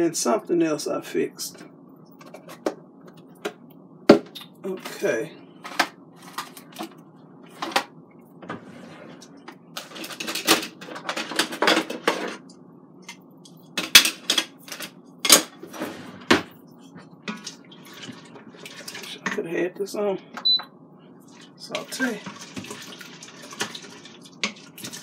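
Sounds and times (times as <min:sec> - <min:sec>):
utensils clattering on countertop: 0:09.8 - 0:12.4, 0:13.8 - 0:15.5.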